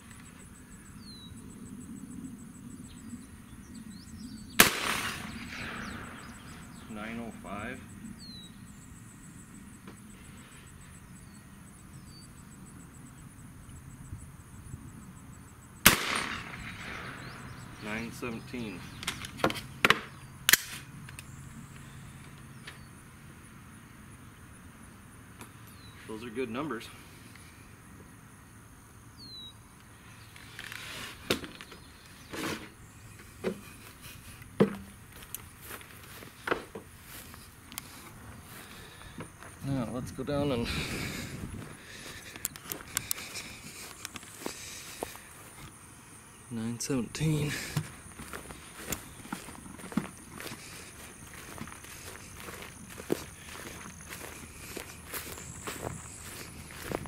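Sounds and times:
rifle shot: 0:04.6 - 0:06.4, 0:15.8 - 0:17.5.

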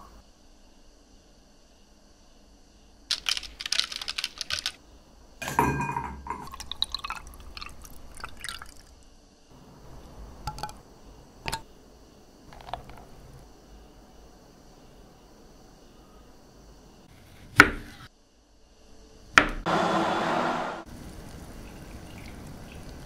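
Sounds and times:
juice dripping into glass: 0:06.4 - 0:09.0, 0:21.6 - 0:23.0
liquid poured over ice: 0:06.4 - 0:09.0.

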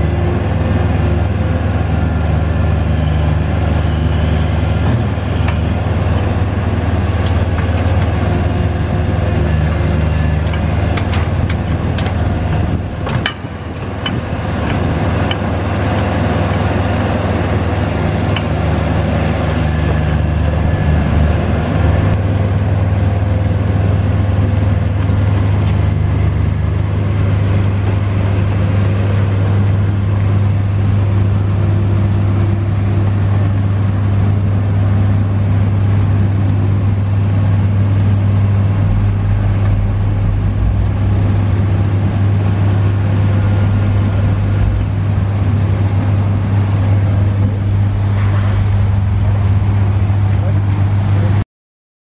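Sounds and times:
excavator diesel engine hum: 0:00.0 - 0:51.4.

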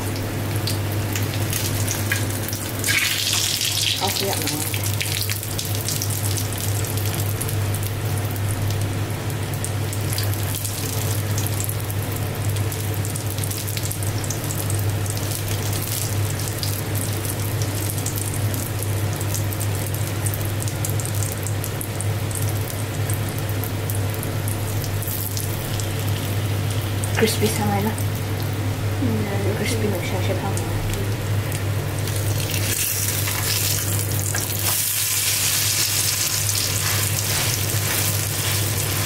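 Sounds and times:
batter sizzling in hot oil: 0:00.0 - 0:28.6, 0:30.6 - 0:39.0
steady low hum: 0:00.0 - 0:39.0.

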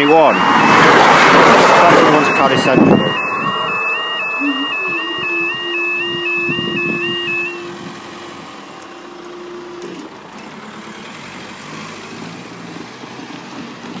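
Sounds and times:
level crossing two-tone alarm: 0:00.0 - 0:07.8
steady hum of barriers rising: 0:00.0 - 0:11.1
vehicles driving over crossing: 0:00.0 - 0:14.0.

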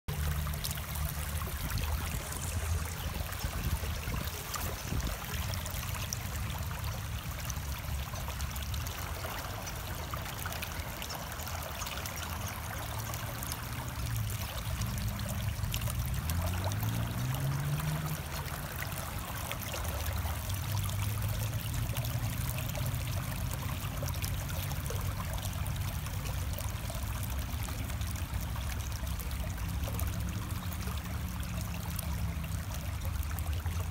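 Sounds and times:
low rumble: 0:00.1 - 0:06.7
stream trickling over rocks: 0:00.1 - 0:33.9.

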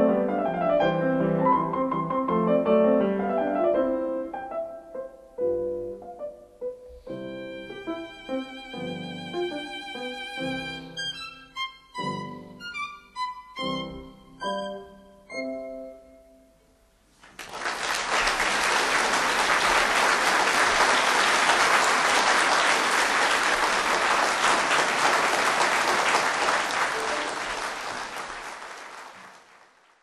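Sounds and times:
audience applauding: 0:17.2 - 0:30.0.

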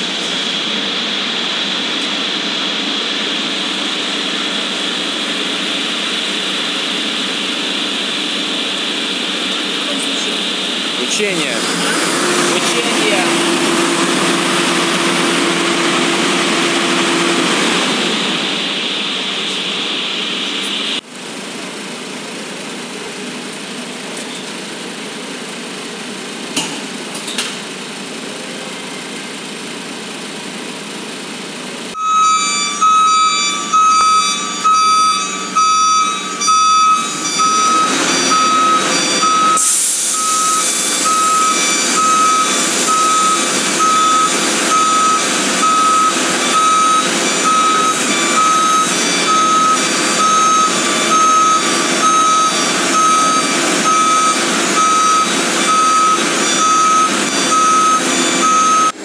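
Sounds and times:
fire truck engine running: 0:00.0 - 0:59.0
warning beeper: 0:32.0 - 0:59.0
hiss: 0:39.6 - 0:44.6.

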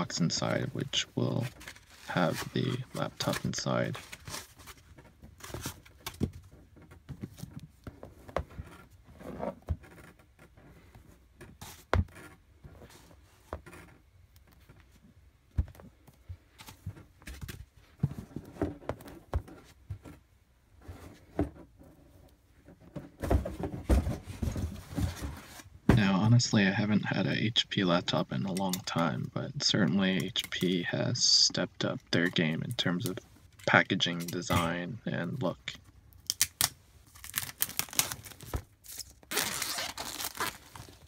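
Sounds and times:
cardboard boxes being handled: 0:22.7 - 0:26.4.

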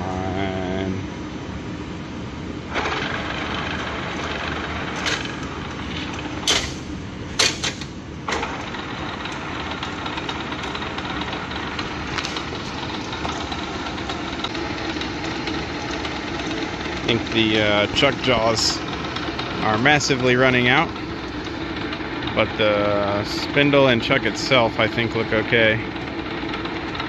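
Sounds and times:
lathe motor humming: 0:02.4 - 0:07.3, 0:07.9 - 0:27.0
sharp metal clanks: 0:06.4 - 0:08.4.

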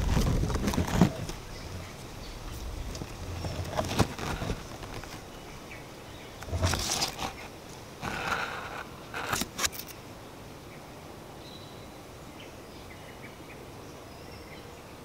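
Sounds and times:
wind rumble on microphone: 0:00.0 - 0:09.3
wind rustling bamboo leaves: 0:00.0 - 0:15.0.

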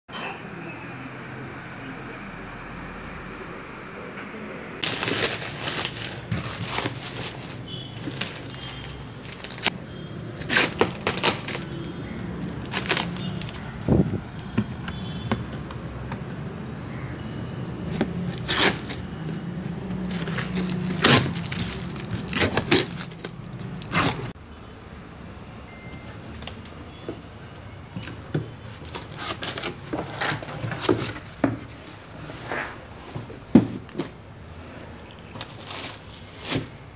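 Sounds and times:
cardboard scraping: 0:04.8 - 0:09.7, 0:10.4 - 0:11.8, 0:12.4 - 0:16.5, 0:17.9 - 0:24.4, 0:28.0 - 0:34.8, 0:35.4 - 0:36.9
packing tape peeling and crinkling: 0:04.8 - 0:09.7, 0:10.4 - 0:11.8, 0:12.4 - 0:14.2, 0:18.0 - 0:24.4, 0:28.8 - 0:31.4, 0:35.3 - 0:36.9.

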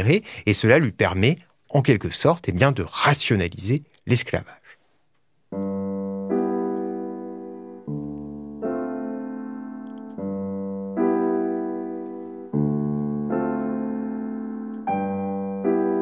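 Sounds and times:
slow piano chords: 0:05.5 - 0:16.0.

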